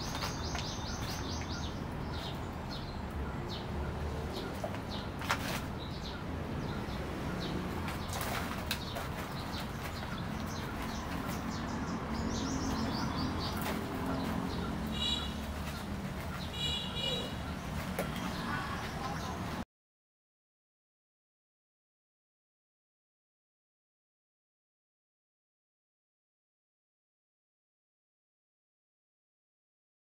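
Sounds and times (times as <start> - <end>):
small birds chirping: 0.0 - 19.6.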